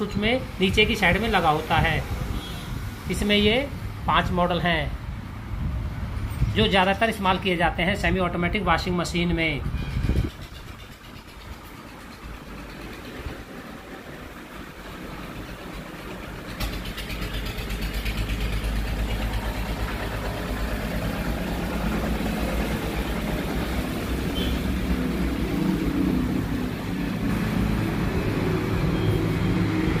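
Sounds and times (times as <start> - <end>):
low engine rumble: 9.6 - 30.0.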